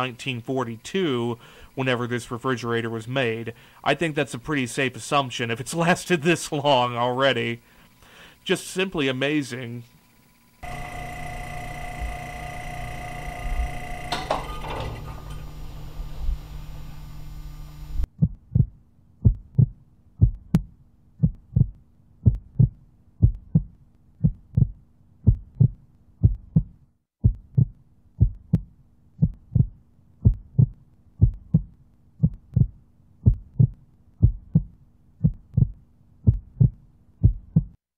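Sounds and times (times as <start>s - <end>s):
faint steady low hum: 0.0s - 26.0s
heartbeat-like low thumps: 18.0s - 37.8s.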